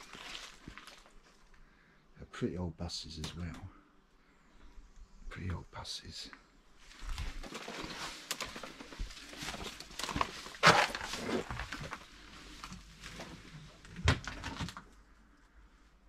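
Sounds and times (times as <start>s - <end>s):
rustling and crunching: 0.0s - 1.6s, 6.8s - 15.5s.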